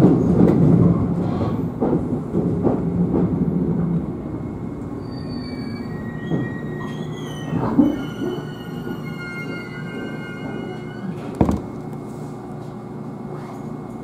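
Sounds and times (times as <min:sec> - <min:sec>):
electric train hum: 0:00.0 - 0:14.0
wheels squealing on rails: 0:04.9 - 0:11.8.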